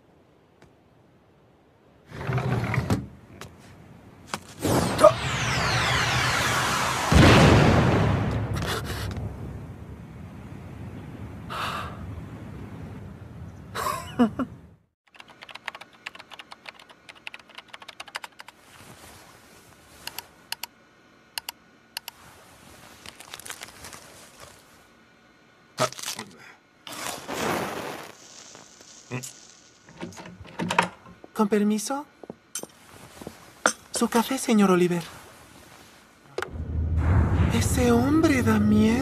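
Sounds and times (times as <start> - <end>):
low rumble: 4.7 - 11.4, 36.4 - 39.0
mouse and keyboard clicking: 15.1 - 18.6, 20.1 - 20.7, 21.4 - 22.2
match being struck: 26.9 - 29.8.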